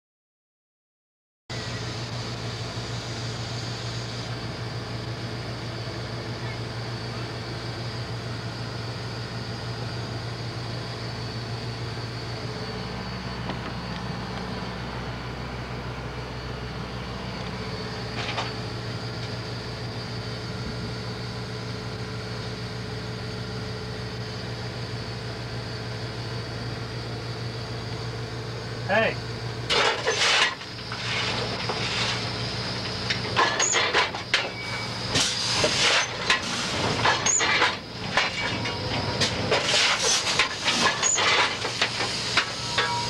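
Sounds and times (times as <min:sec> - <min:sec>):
faint high whine: 0:01.5 - 0:43.0
steam locomotive cab hum: 0:01.5 - 0:43.0.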